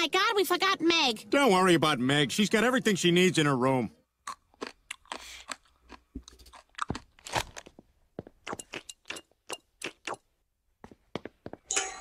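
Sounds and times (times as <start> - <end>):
crunchy snack being chewed: 4.2 - 7.7, 8.4 - 10.2.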